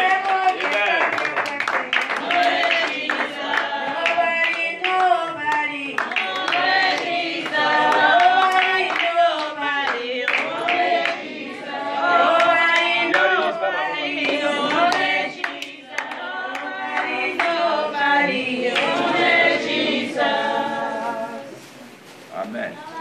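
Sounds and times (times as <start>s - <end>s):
hand claps: 0.0s - 11.2s, 14.2s - 17.6s
voices singing together: 0.0s - 22.0s.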